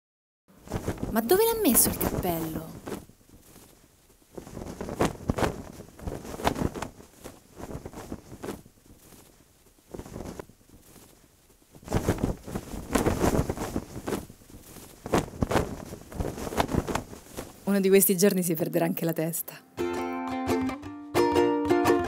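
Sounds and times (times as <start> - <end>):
laundry sheets rustling and flapping: 0.5 - 17.9.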